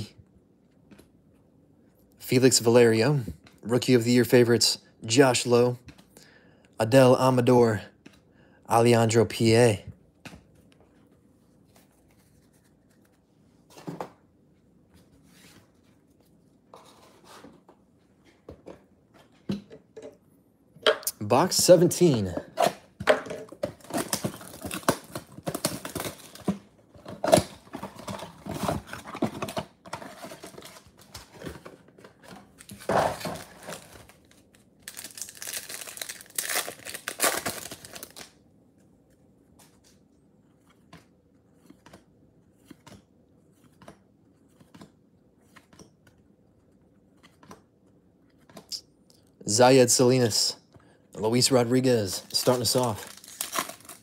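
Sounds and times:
wrappers crinkling and tearing: 32.7s - 38.4s, 51.3s - 54.0s.

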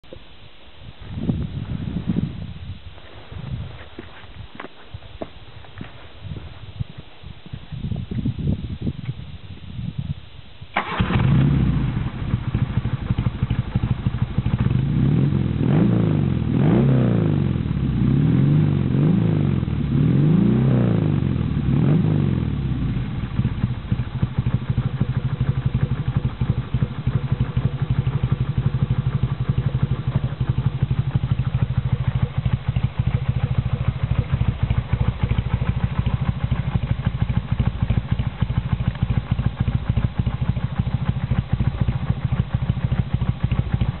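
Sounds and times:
motorcycle engine starting: 10.6s - 44.0s
motorcycle engine idling: 10.7s - 16.6s, 21.0s - 44.0s.

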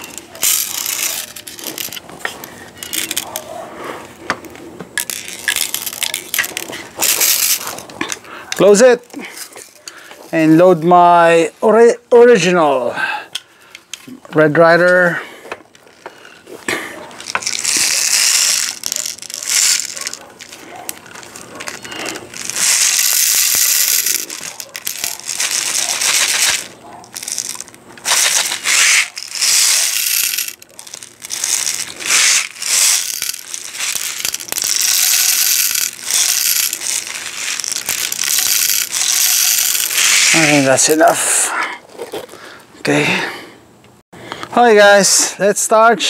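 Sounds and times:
metal bbs pouring and rattling: 0.0s - 3.4s, 5.0s - 11.4s, 17.1s - 41.2s.

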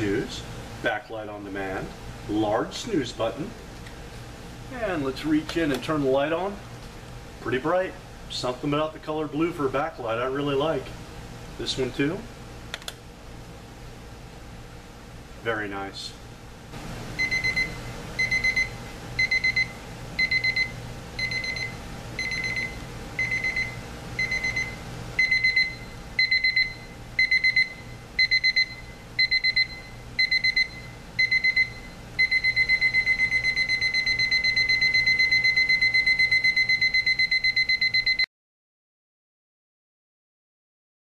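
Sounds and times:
alarm clock beeping: 17.2s - 38.3s.

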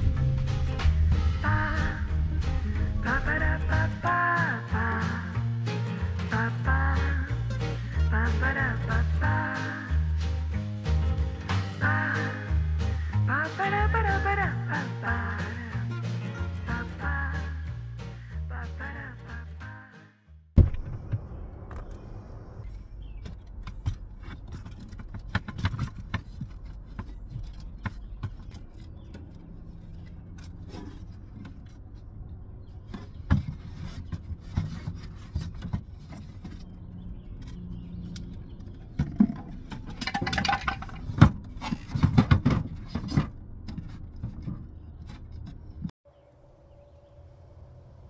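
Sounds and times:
crate scraping into position: 38.8s - 45.7s
wooden crates knocking: 38.8s - 45.9s.

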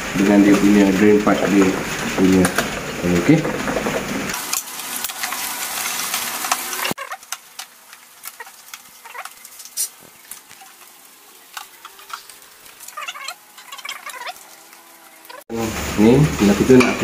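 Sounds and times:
plastic parts clicking and knocking: 1.2s - 5.2s
loud even hiss: 9.6s - 12.9s, 14.7s - 17.0s.

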